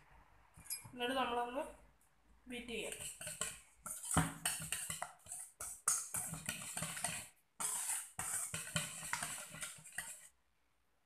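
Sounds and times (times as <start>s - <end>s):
whisk clinking in metal bowl: 2.9s - 10.3s.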